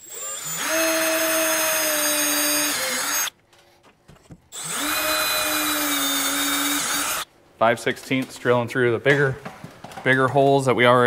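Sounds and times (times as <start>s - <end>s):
cordless drill whining: 0.0s - 3.3s, 4.5s - 7.3s.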